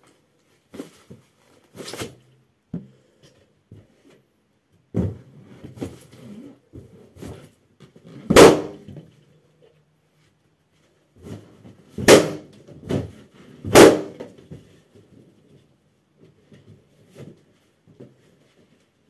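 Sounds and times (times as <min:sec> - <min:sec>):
balloons popping: 0:08.2 - 0:08.9, 0:12.0 - 0:12.5, 0:13.7 - 0:14.2.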